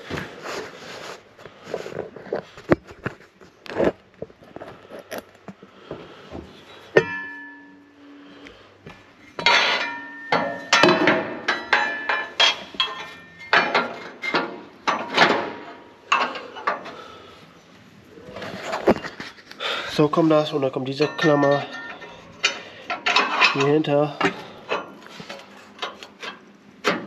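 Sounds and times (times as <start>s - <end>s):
metal clanks and scrapes: 6.7s - 7.9s, 9.2s - 17.4s, 18.2s - 27.0s.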